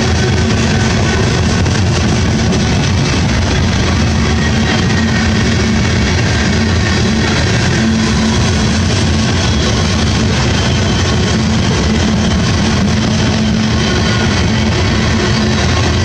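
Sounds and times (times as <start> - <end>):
train wheels clattering on rails: 0.0 - 16.0.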